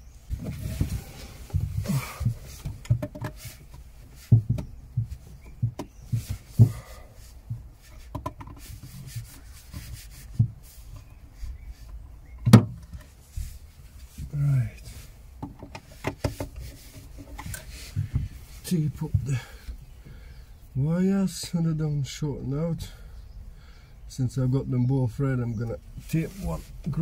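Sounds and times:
jacket rustling: 0.1s - 12.4s
light knocks and taps: 0.3s - 11.1s, 15.4s - 18.4s.

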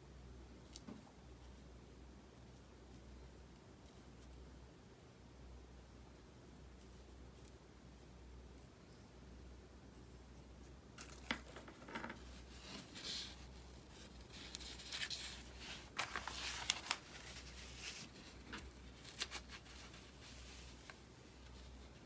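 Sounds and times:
paper rustling and crackling: 11.0s - 22.0s.

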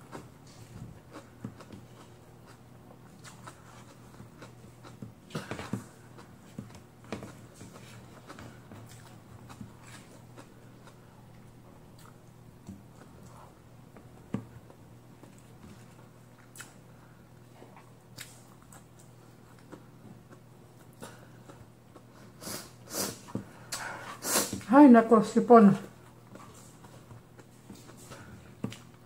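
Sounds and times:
person chewing food: 0.0s - 24.6s, 26.0s - 29.0s
faint low hum: 0.0s - 29.0s
person sniffing: 22.3s - 24.6s.

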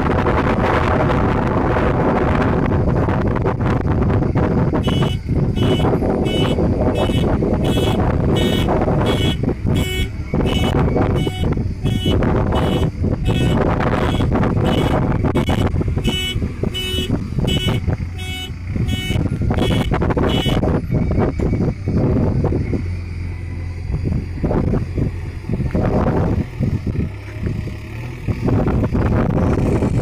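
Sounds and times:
diesel engine running: 0.0s - 30.0s
reverse alarm beeping: 4.8s - 21.1s.

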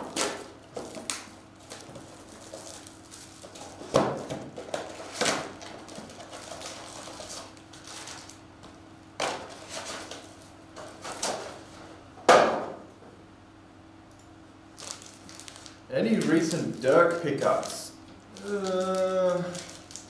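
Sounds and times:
card packs knocking and rustling: 0.0s - 8.3s, 14.8s - 17.8s.

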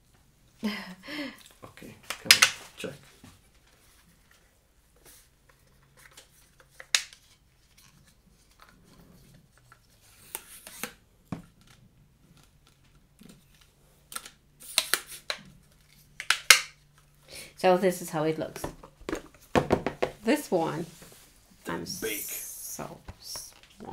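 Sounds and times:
plastic clicks and snaps: 13.2s - 15.5s, 16.2s - 17.1s.

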